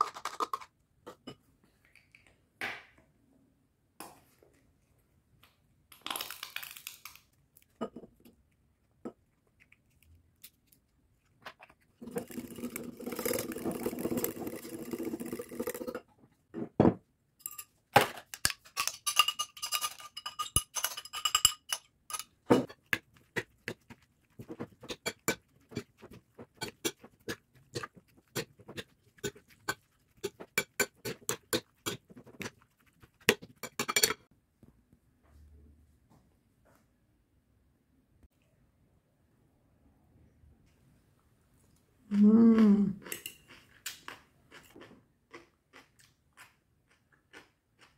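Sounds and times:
spoon scraping glass bowl: 12.0s - 16.0s, 18.8s - 34.2s
forks clinking on porcelain plate: 18.8s - 22.3s, 33.6s - 34.2s.

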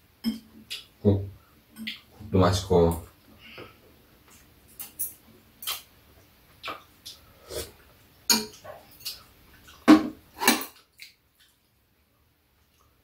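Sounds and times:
chewing: 6.6s - 9.8s
slurping: 7.4s - 7.9s
utensils clinking on bowls: 8.3s - 9.2s.

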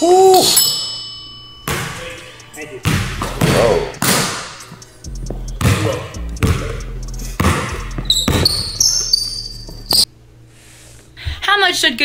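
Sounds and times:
sneakers squeaking: 1.6s - 10.1s
basketball bouncing on hardwood: 2.8s - 4.5s, 5.3s - 6.8s, 7.4s - 8.8s.

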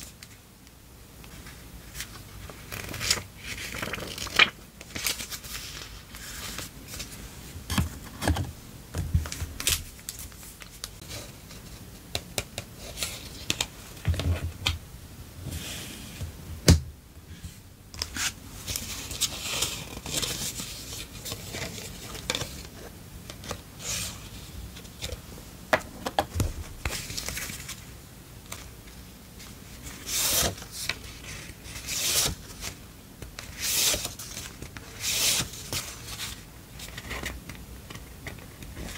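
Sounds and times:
paper pages rustling: 1.3s - 7.2s, 18.0s - 22.8s, 26.4s - 27.9s.

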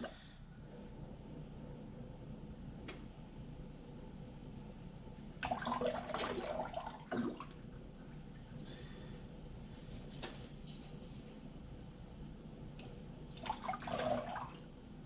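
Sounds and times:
water splashing into a sink: 5.4s - 7.7s, 12.8s - 14.7s.

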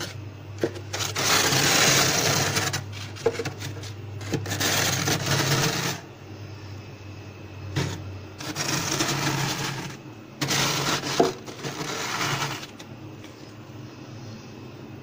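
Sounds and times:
plastic ruler scraping frost: 0.0s - 6.0s, 7.8s - 12.8s.

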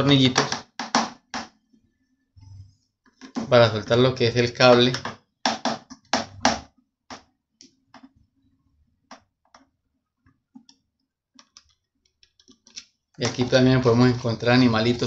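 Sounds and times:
screwdriver knocks on plastic: 0.4s - 1.5s.

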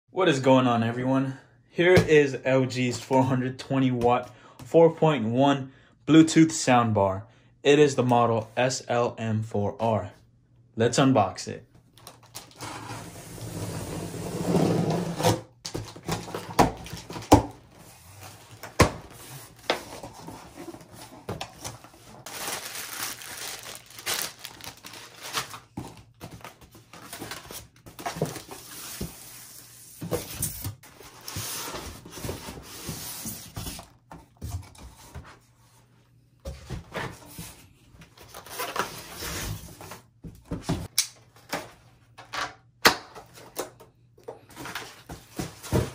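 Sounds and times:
cardboard and packing rustling: 15.7s - 29.3s, 36.5s - 42.1s, 44.4s - 45.9s.

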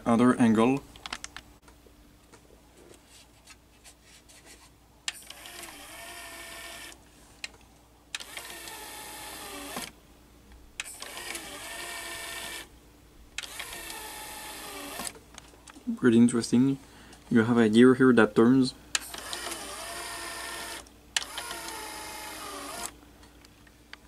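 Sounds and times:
small motor whirring: 5.1s - 7.0s, 8.2s - 9.9s, 10.8s - 12.7s, 13.4s - 15.2s, 19.0s - 23.0s.

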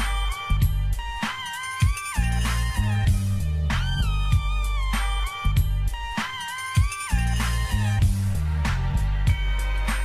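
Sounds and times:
beat with bass and drums: 0.0s - 10.0s
sliding lead melody: 0.0s - 10.0s.

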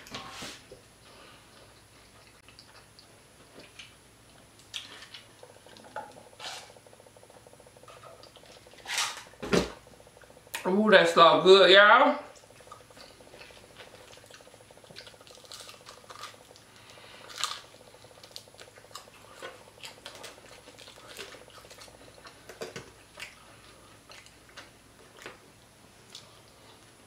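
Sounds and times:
chewing and mouth clicks: 1.5s - 5.8s, 7.9s - 8.8s, 12.3s - 25.4s, 26.0s - 26.9s
crisp fried skin crackling: 12.4s - 23.5s.

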